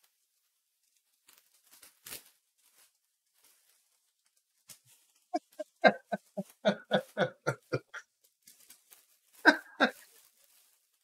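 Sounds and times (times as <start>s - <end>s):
brief rustle: 0.8s - 5.3s
person laughing: 5.4s - 8.0s, 9.5s - 10.1s.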